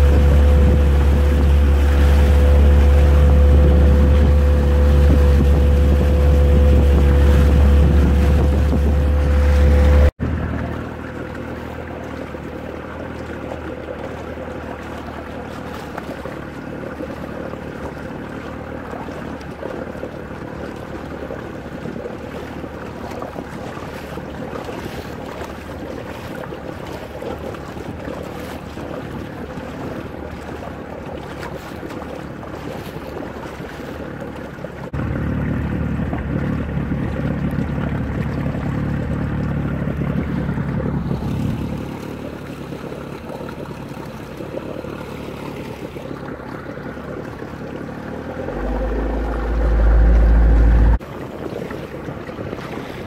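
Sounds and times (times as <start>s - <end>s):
wind on microphone: 0.0s - 10.6s, 48.2s - 53.0s
speedboat engine running: 0.0s - 53.0s
water washing against hull: 0.0s - 53.0s.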